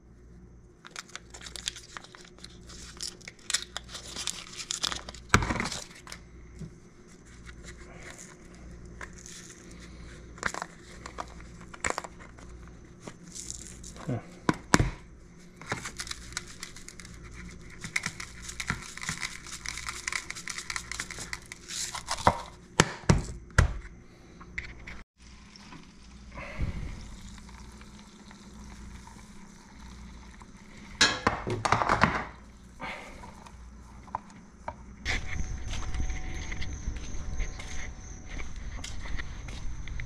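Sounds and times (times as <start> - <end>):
seasoning rattling from shaker: 15.8 - 22.3.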